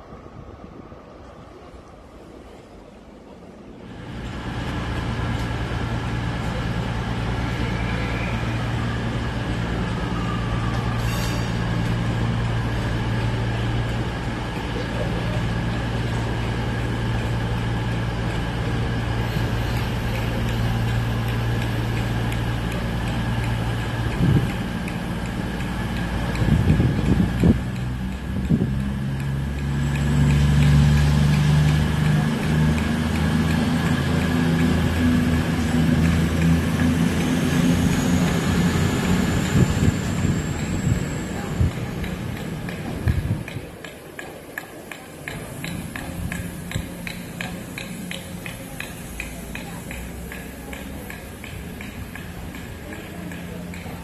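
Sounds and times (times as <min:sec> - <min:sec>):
train mechanical hum: 0:00.0 - 0:54.0
deep motor drone: 0:04.0 - 0:43.6.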